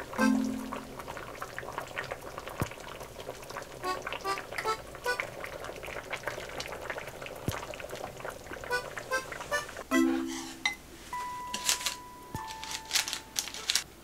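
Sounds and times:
broth bubbling in pot: 0.0s - 9.9s
light background music: 0.1s - 1.0s, 9.9s - 13.8s.

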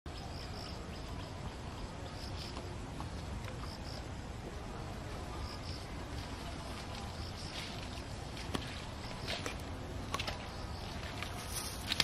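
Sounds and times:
insects chirping: 0.1s - 2.8s, 3.4s - 4.2s, 5.2s - 8.2s, 10.2s - 12.0s.

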